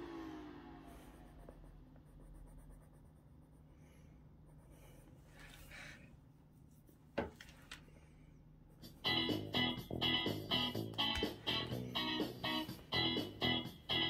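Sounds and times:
pencil scratching on paper: 0.9s - 6.0s.

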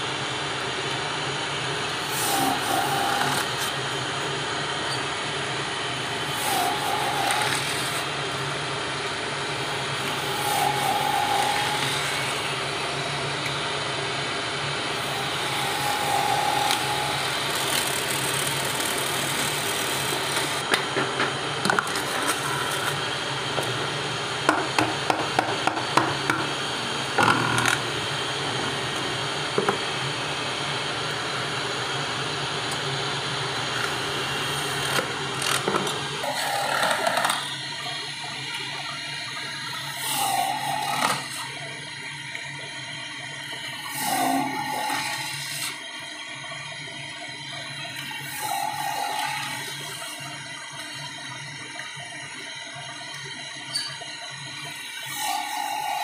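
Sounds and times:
lathe running: 0.0s - 56.0s
blade shaving plastic tube: 2.0s - 3.8s, 6.2s - 8.1s.

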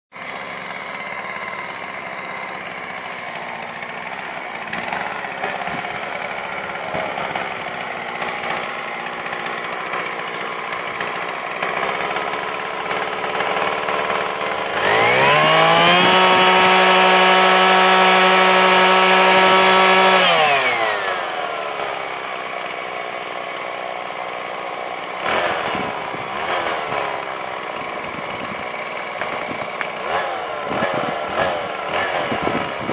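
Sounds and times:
chainsaw running and revving: 0.1s - 32.9s.

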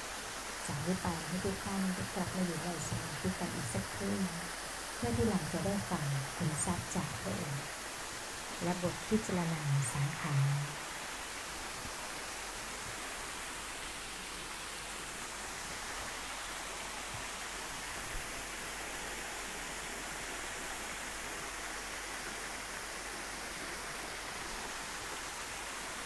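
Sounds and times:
steady hiss: 0.0s - 26.0s.

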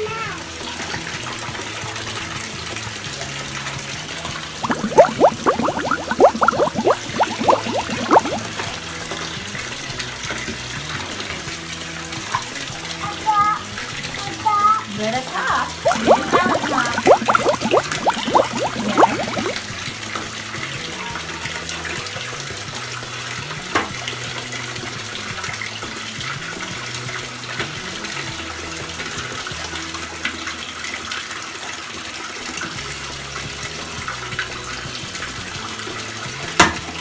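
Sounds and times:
water pouring into bathtub: 4.6s - 8.6s, 15.8s - 19.6s.

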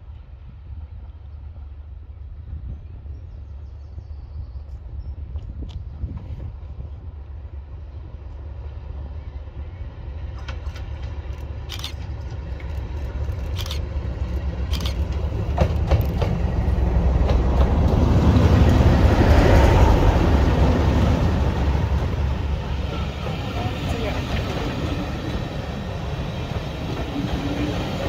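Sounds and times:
diesel locomotive engine: 0.0s - 28.0s
sharp clicks: 10.4s - 16.3s.

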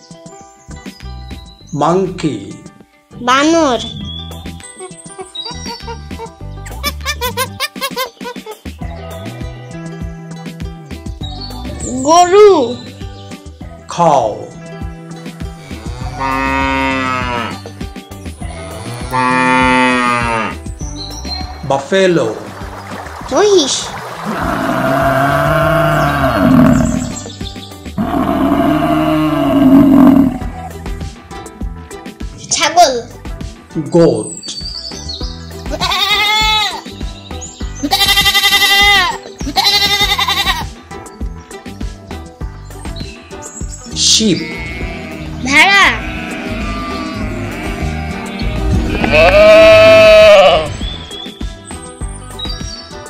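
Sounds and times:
background music: 0.0s - 53.0s
cow mooing: 15.4s - 17.6s, 18.5s - 20.6s, 24.2s - 27.3s, 28.0s - 30.5s, 44.4s - 50.7s
goat bleating: 35.7s - 36.8s, 37.8s - 40.7s, 44.4s - 50.7s.

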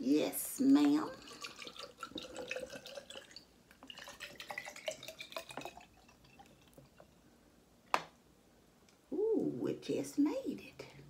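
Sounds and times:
drink pouring into glass: 1.0s - 7.2s.

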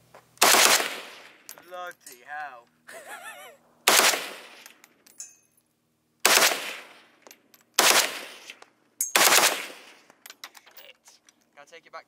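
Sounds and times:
automatic rifle bursts: 0.4s - 1.2s, 3.9s - 4.6s, 6.2s - 6.8s, 7.8s - 8.5s
gunshot echoes: 3.9s - 4.6s, 6.2s - 7.0s.

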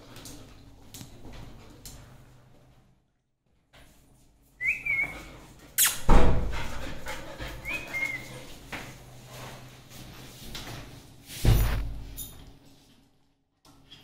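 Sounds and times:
puppy whining: 7.6s - 8.4s.

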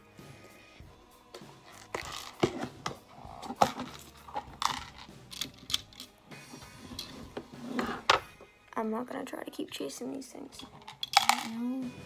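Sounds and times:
plastic pieces clicking: 3.6s - 6.1s, 10.8s - 11.6s.

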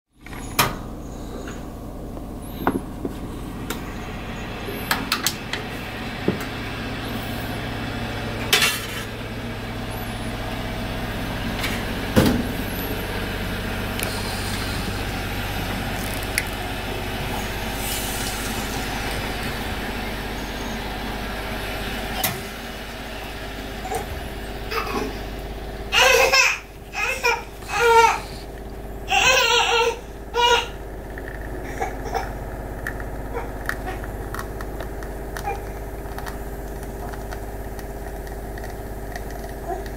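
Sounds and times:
baby crying and babbling: 25.9s - 28.4s, 29.1s - 30.8s.

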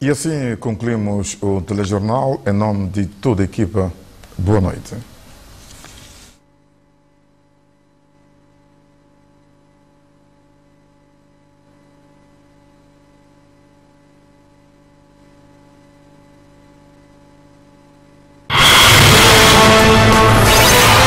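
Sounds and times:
faint electrical hum: 0.0s - 18.5s
loud theme music: 18.5s - 21.0s.

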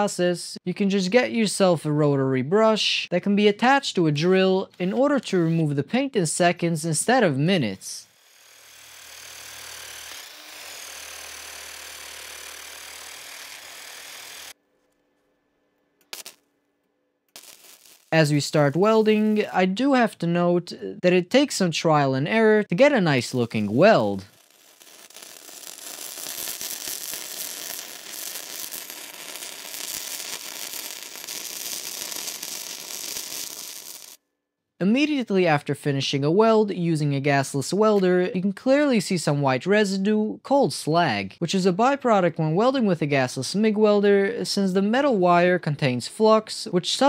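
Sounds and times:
welding arc crackling: 8.0s - 14.6s, 16.0s - 16.4s, 17.3s - 19.8s, 22.8s - 34.2s
drill wire brush scrubbing steel: 8.1s - 14.6s, 23.1s - 34.2s.

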